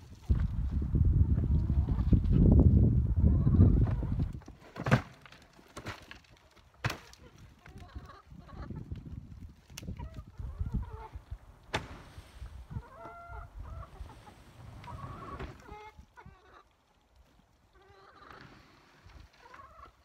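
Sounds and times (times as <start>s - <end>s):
chickens clucking: 3.0s - 4.6s, 7.2s - 11.5s, 12.4s - 20.0s.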